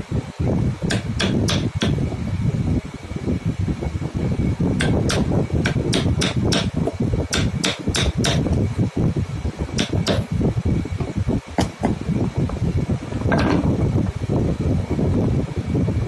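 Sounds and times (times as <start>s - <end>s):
steady low hum: 0.0s - 16.0s
mallet striking chisel: 0.9s - 2.0s, 4.8s - 8.5s, 9.8s - 10.3s.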